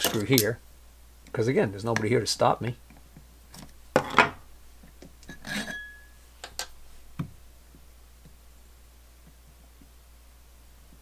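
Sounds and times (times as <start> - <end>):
metal parts clinking: 0.0 - 0.6.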